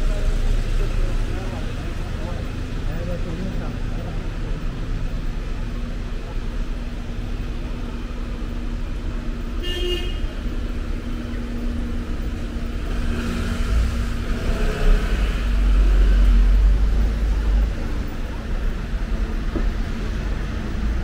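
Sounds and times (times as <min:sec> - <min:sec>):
vehicle engines humming: 0:00.0 - 0:21.0
car horn toot: 0:09.6 - 0:10.4.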